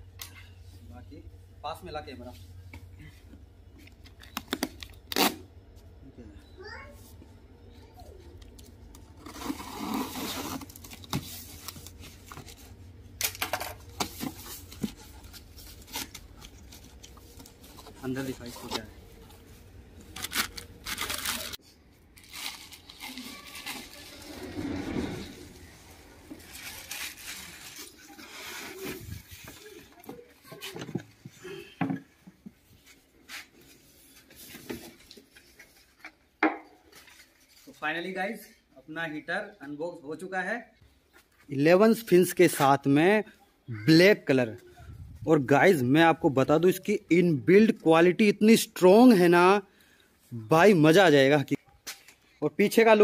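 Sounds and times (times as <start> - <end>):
packaging rustling: 9.1 - 29.8.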